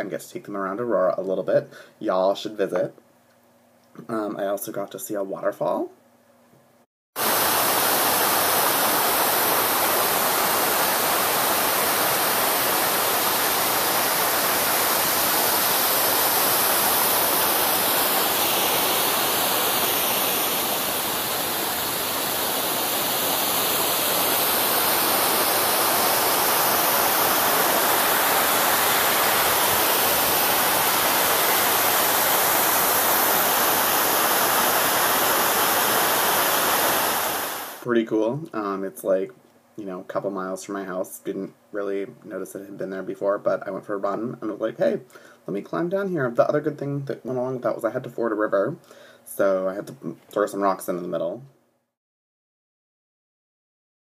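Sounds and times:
waterfall and creek rushing: 7.2 - 37.9.

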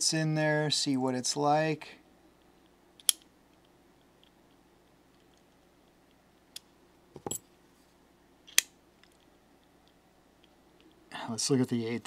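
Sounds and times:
bits set down on tabletop: 7.1 - 7.5.

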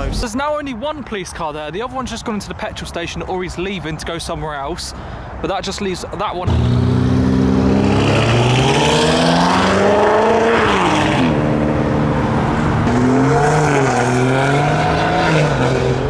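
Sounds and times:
car engine revving: 6.4 - 16.0.

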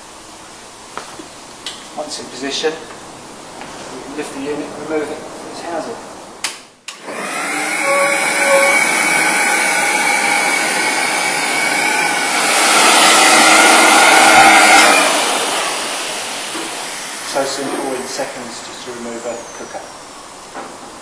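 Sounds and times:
blower rushing whine: 0.0 - 21.0.

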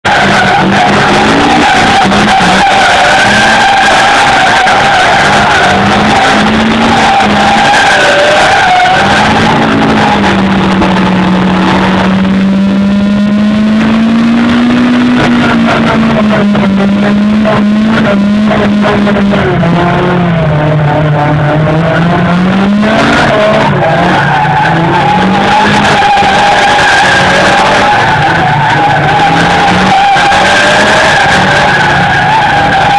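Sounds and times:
tyres screeching: 0.0 - 19.4, 20.4 - 32.9
car engine revving: 0.0 - 32.9.

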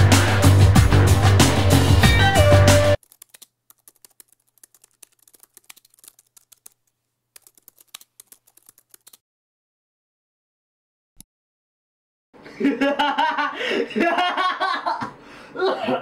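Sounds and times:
music: 0.0 - 3.0
typing on laptop keyboard: 3.0 - 9.2.

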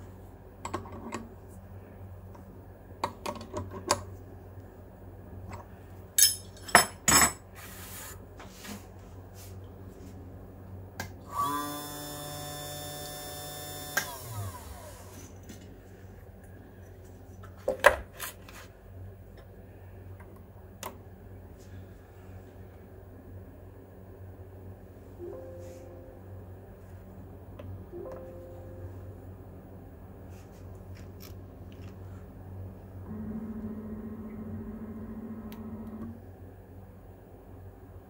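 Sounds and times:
machine motor whine: 11.3 - 15.4, 33.0 - 36.2.

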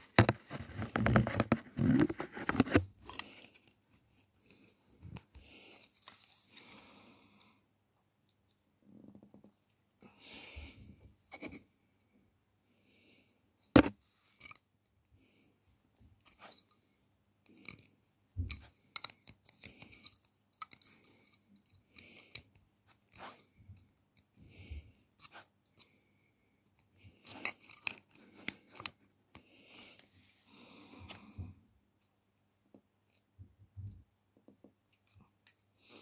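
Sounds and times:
small clicks and scrapes: 0.0 - 6.8, 13.6 - 14.7, 16.2 - 26.0, 26.8 - 30.1.

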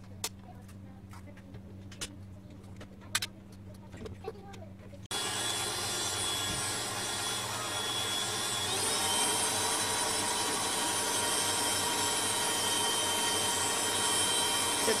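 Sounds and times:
stand mixer motor whining: 5.1 - 15.0.

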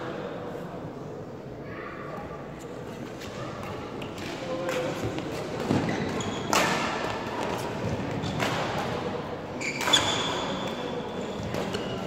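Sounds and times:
shoe squeaks on court floor: 5.6 - 6.7, 9.6 - 12.0.

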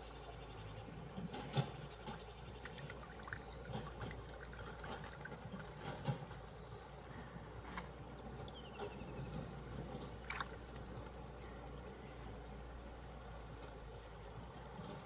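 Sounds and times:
water splashing around wading person: 1.9 - 6.6, 10.0 - 11.2.

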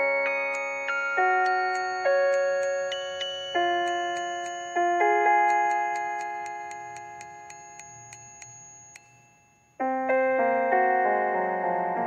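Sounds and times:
fast high ticking: 0.5 - 9.6.

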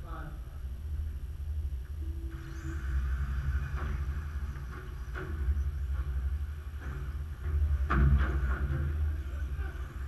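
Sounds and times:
low rumble: 0.0 - 10.0
mid-pitched hum: 0.0 - 10.0
high rising motor whine: 0.6 - 10.0
sharp knocks: 3.8 - 9.2.

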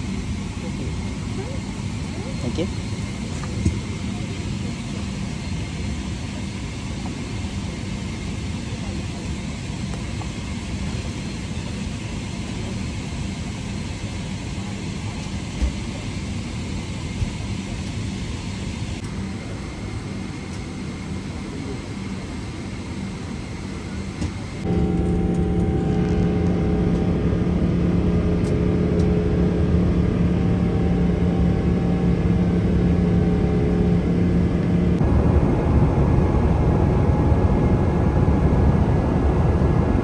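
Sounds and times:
airliner cabin rumble and hiss: 0.0 - 40.0
faint steady hum: 24.6 - 40.0.

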